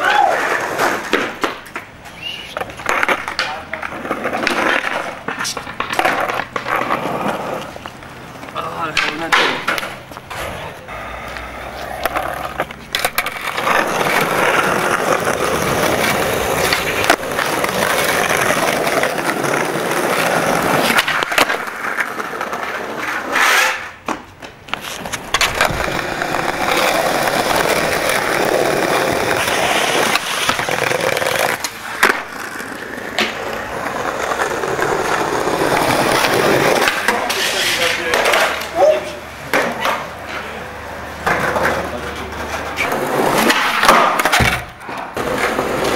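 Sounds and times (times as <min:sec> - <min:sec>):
skateboard wheels rolling on bricks: 0:00.0 - 0:45.9
skateboard knocks: 0:00.7 - 0:10.6, 0:24.0 - 0:38.6, 0:41.2 - 0:45.9.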